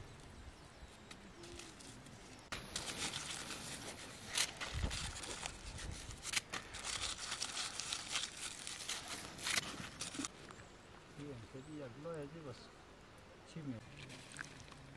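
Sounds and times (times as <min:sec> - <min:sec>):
plastic bag crinkling: 0:02.6 - 0:10.3.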